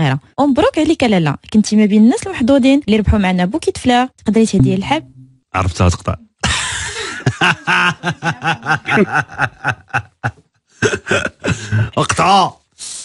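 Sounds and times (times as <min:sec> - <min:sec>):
hearty laughter in rhythmic bursts: 0:06.4 - 0:12.0.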